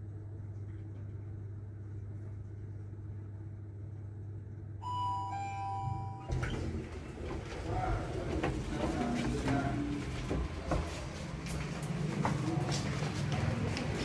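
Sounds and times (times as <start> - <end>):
elevator hum: 0.0 - 14.0
two-tone elevator chime: 4.8 - 6.4.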